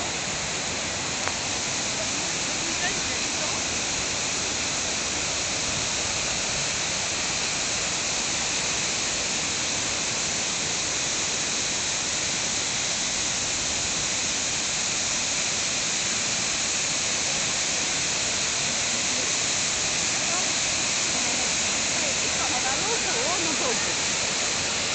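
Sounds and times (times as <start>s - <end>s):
waterfall rushing: 0.0s - 24.9s.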